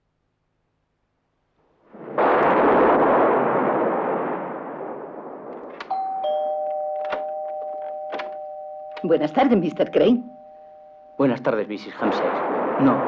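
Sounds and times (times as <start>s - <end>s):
loud crash: 1.9s - 5.9s
two-tone doorbell chime: 5.8s - 11.6s.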